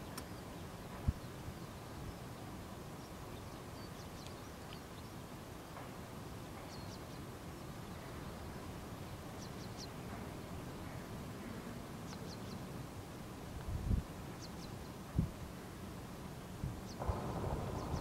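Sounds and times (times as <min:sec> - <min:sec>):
small birds chirping: 0:00.0 - 0:05.9, 0:06.6 - 0:12.7, 0:16.8 - 0:18.0
steady rushing noise: 0:17.0 - 0:18.0.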